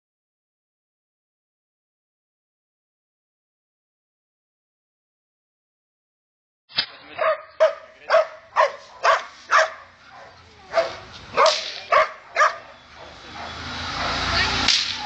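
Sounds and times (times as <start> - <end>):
dog barking sharply: 7.2 - 14.3.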